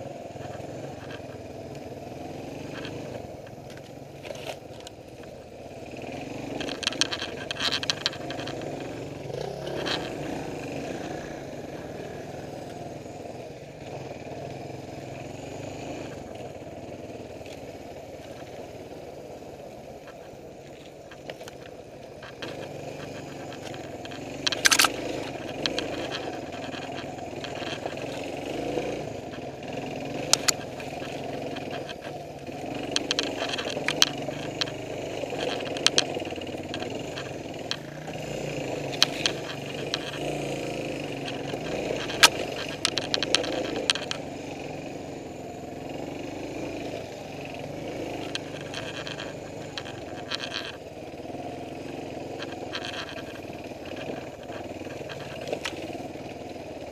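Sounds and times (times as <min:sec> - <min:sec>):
motorcycle engine revving: 0:00.0 - 0:56.9
clacks and knocks from bike: 0:00.3 - 0:12.8, 0:19.6 - 0:44.9, 0:45.8 - 0:56.9.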